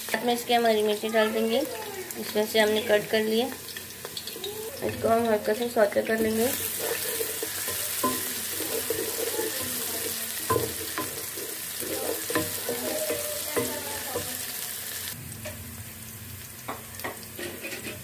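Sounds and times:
onion sizzling in oil: 0.0s - 18.0s
wooden spoon scraping pot: 6.0s - 14.1s, 17.4s - 18.0s.

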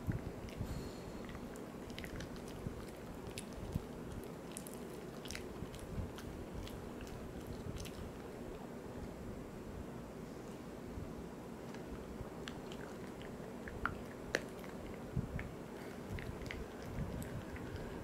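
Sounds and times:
dog crunching a chew: 1.2s - 8.3s, 12.4s - 17.9s.

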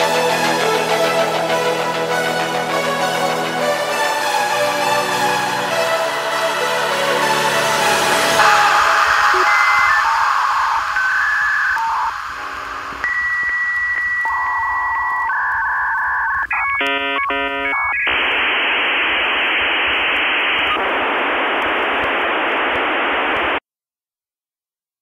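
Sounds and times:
loud even modem hiss: 7.3s - 14.9s
dial-up modem beeping tones: 8.4s - 18.5s
modem warbling tones: 8.4s - 20.0s.

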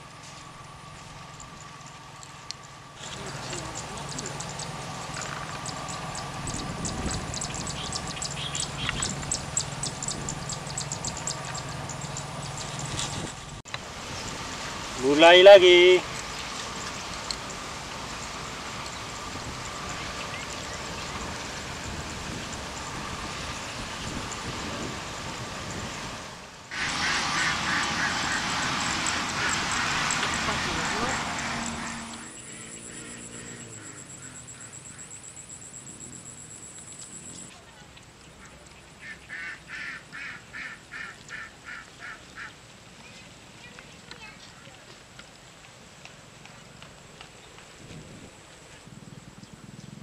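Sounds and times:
distant voices: 0.0s - 50.0s
outdoor background noise: 0.0s - 50.0s
small birds chirping: 1.0s - 13.3s, 15.7s - 24.6s, 27.4s - 44.9s.

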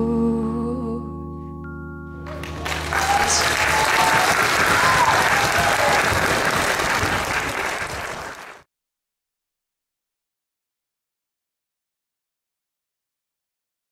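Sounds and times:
held music chord: 0.0s - 3.6s
audience applause: 2.3s - 8.6s.

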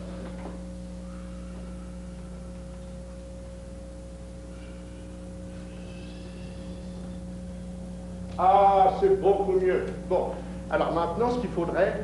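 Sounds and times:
electrical hum with hiss: 0.0s - 12.0s.

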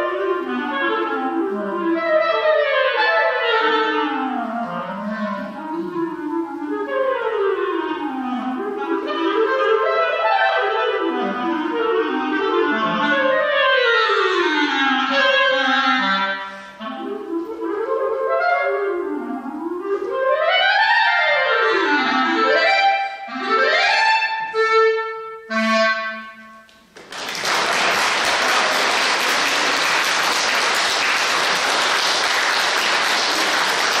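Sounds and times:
solo clarinet playing: 0.0s - 26.7s
audience applause: 27.0s - 34.0s.

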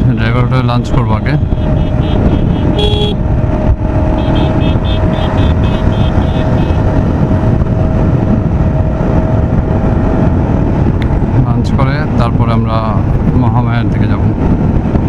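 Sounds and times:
motorcycle engine whine: 0.0s - 13.4s
wind and road rumble: 0.0s - 15.0s
short high beeps: 1.9s - 3.2s.

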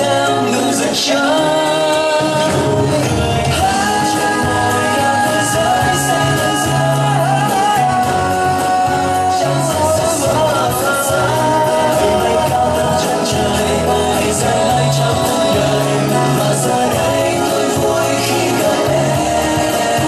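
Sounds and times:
bass line: 0.0s - 20.0s
person singing with held notes: 0.0s - 20.0s.

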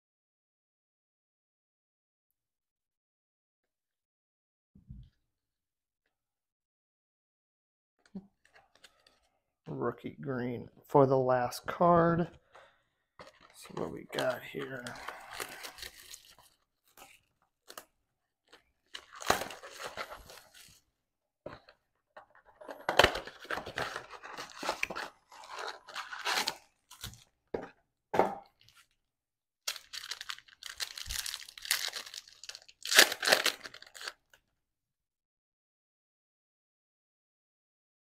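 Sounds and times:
cardboard box tearing: 23.0s - 27.1s
plastic wrap crinkling: 29.7s - 34.1s.

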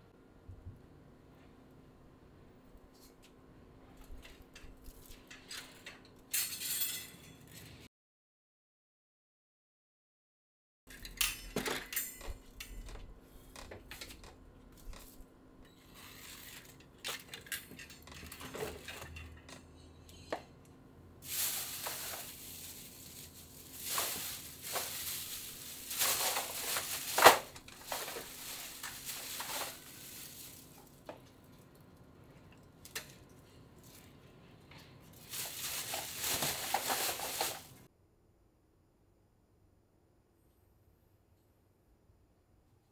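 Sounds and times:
plastic bags rustling: 21.2s - 31.1s, 35.1s - 37.9s.

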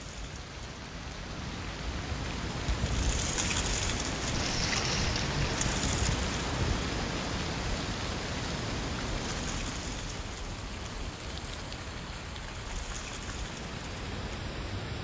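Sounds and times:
wind blowing through trees: 0.0s - 15.0s.

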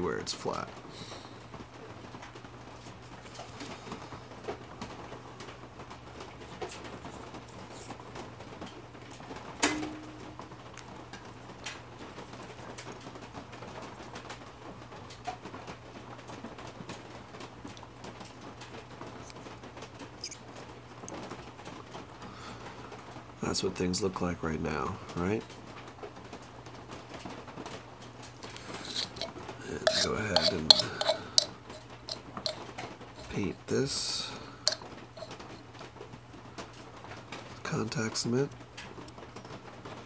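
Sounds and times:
steady low hum: 28.4s - 35.7s.

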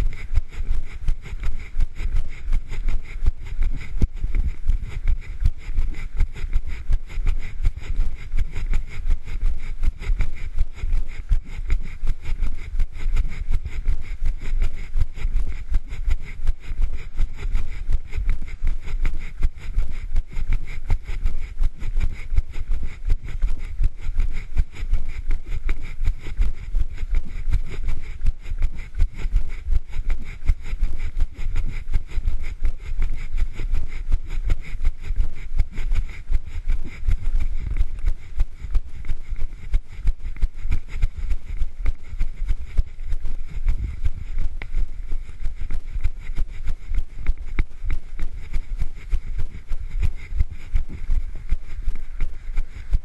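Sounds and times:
wind rumbling on microphone: 0.0s - 53.0s
low rumble: 35.6s - 53.0s.

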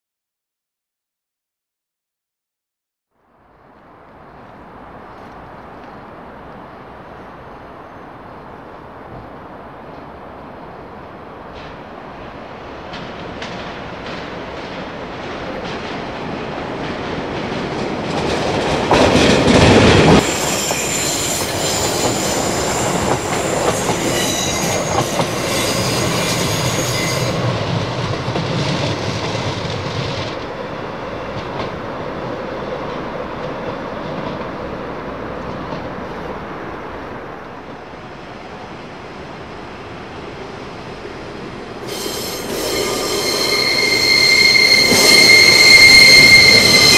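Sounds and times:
low train engine rumble: 3.3s - 46.9s
train passing rush: 3.5s - 46.9s
rail clicks: 11.4s - 36.4s, 41.8s - 46.9s
high wheel squeal: 20.2s - 27.4s, 41.8s - 46.9s.

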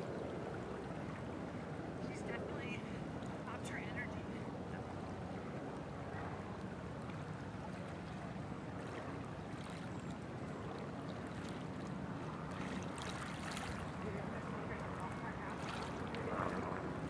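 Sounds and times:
water and wind rush: 0.0s - 17.0s.

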